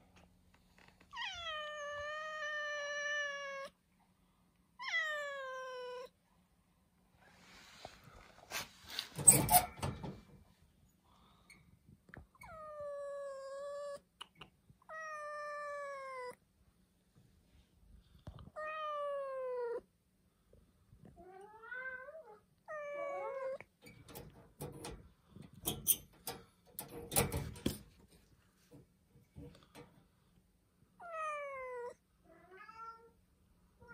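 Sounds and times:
cat meowing: 21.3s - 23.7s
sharp clicks and knocks: 23.8s - 30.0s.

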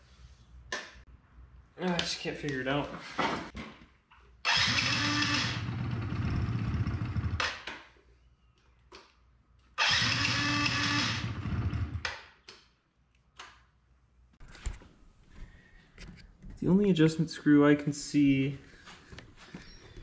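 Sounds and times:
scooter electric starter cranking: 4.4s - 7.6s, 9.8s - 12.0s.

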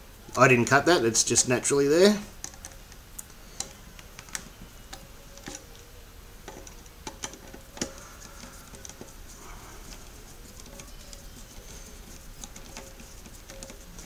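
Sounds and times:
screwdriver clicking: 2.4s - 5.8s, 6.4s - 9.1s, 9.9s - 14.0s.

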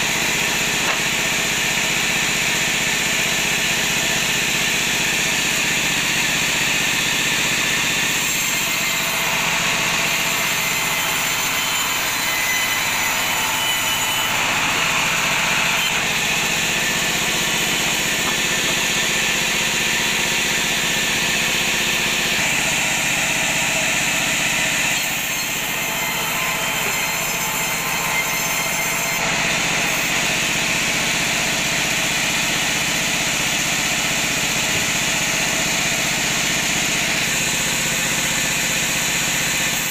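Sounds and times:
bandsaw ripping wood: 0.3s - 1.7s, 14.4s - 20.6s.

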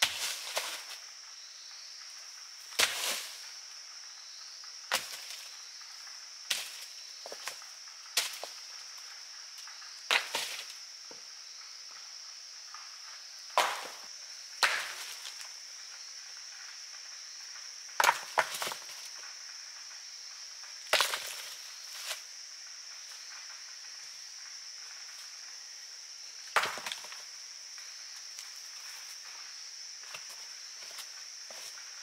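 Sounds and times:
insects droning: 0.0s - 32.0s.

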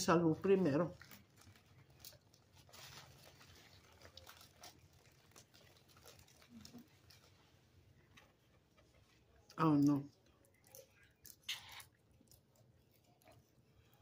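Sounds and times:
soft rustling: 0.8s - 9.5s.

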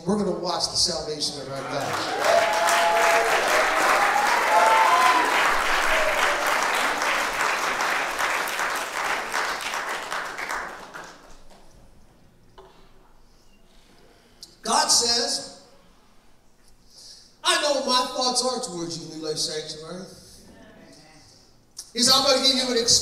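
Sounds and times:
congregation applauding: 1.5s - 11.6s.

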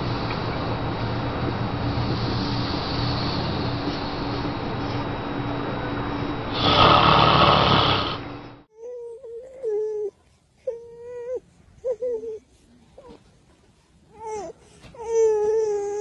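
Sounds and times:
man snoring: 6.5s - 8.3s.

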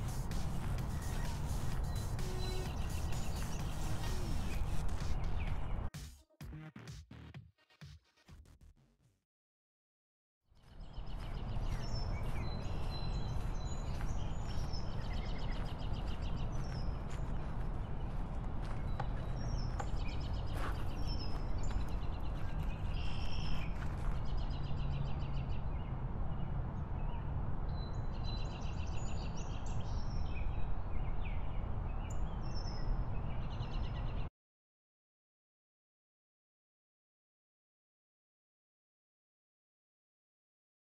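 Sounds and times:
steady rushing noise: 0.0s - 5.8s
small birds chirping: 0.0s - 5.9s, 10.6s - 25.9s.

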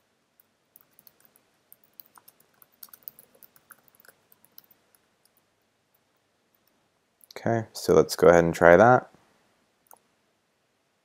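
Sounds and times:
typing on a keyboard: 0.4s - 5.4s.

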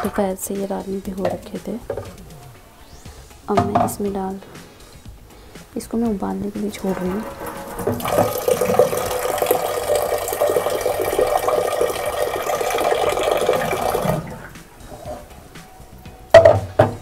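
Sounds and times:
tap water pouring into a pot: 7.3s - 14.5s.

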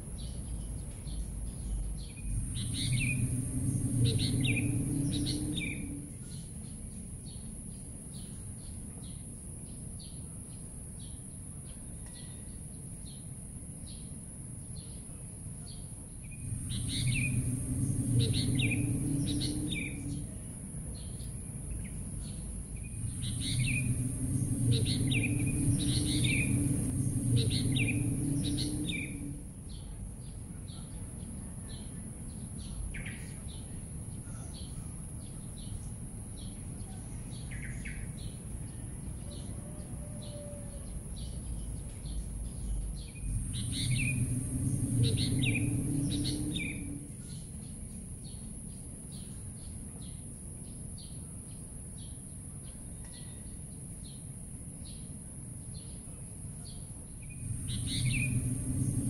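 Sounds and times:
low rumble: 0.0s - 7.3s, 16.2s - 30.6s, 40.8s - 48.6s, 57.0s - 59.0s
steady high hiss: 0.0s - 9.9s, 15.4s - 30.6s, 41.0s - 52.5s, 53.6s - 59.0s
birds chirping falling calls: 0.5s - 6.5s, 16.3s - 20.3s, 21.0s - 29.9s, 40.2s - 47.5s, 57.2s - 59.0s.

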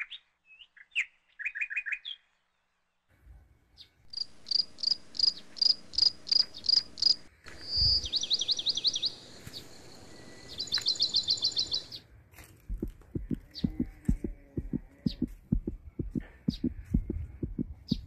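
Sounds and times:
bird chirping and trilling: 0.0s - 2.5s, 4.2s - 12.0s, 16.5s - 18.0s.

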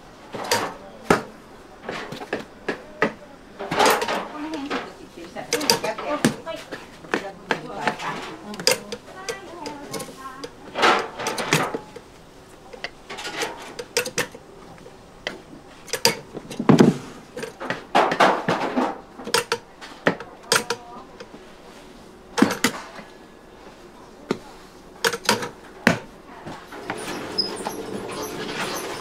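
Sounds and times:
utensils knocking and clicking: 0.3s - 21.4s, 22.4s - 23.1s, 25.0s - 29.0s.

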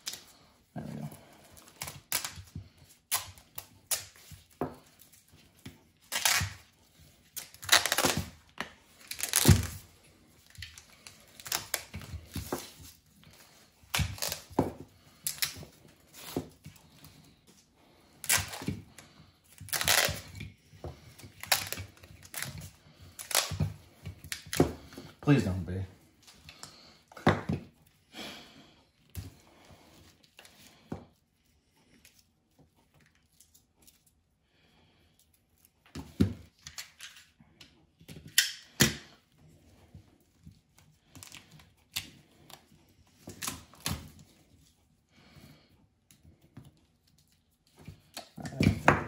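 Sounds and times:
tape ripping and crackling: 1.0s - 16.6s, 18.1s - 20.4s, 21.1s - 24.8s, 41.0s - 44.4s.

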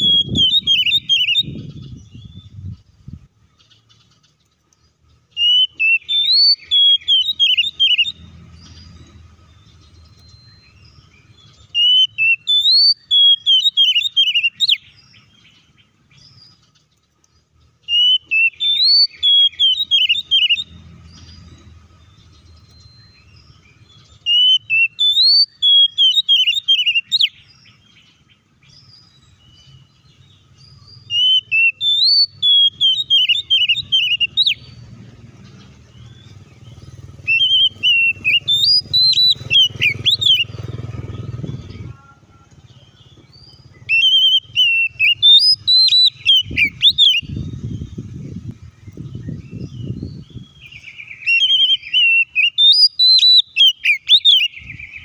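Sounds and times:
bird singing whistled phrases: 0.0s - 2.6s, 5.4s - 9.0s, 9.6s - 15.3s, 17.9s - 21.4s, 22.2s - 27.8s, 28.7s - 34.8s, 37.2s - 40.6s, 41.2s - 48.0s, 48.9s - 55.0s
low background rumble: 32.3s - 51.2s.

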